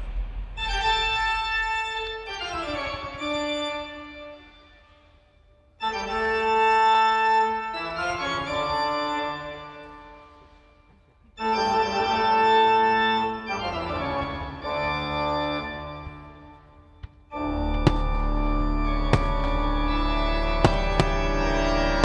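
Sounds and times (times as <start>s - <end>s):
sustained organ-like chords: 11.4s - 16.8s, 17.4s - 22.0s.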